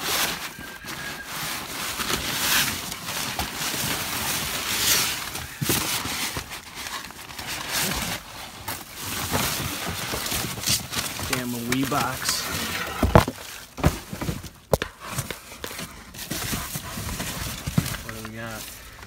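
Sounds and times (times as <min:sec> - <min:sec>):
plastic bags and paper rustling: 0:00.0 - 0:19.0
boxes knocking: 0:08.7 - 0:18.6.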